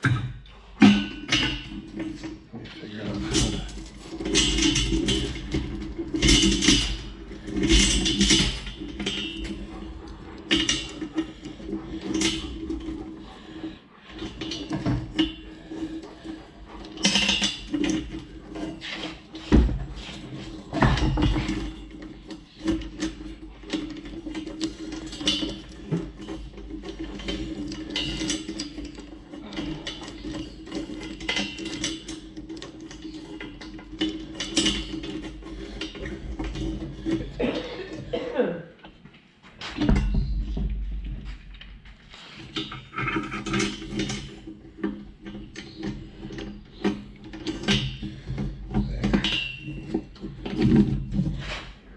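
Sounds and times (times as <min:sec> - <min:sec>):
metallic clanks against steel bar: 0:03.1 - 0:13.3, 0:14.1 - 0:38.3
steel chain clinking: 0:03.1 - 0:38.1, 0:42.4 - 0:51.4.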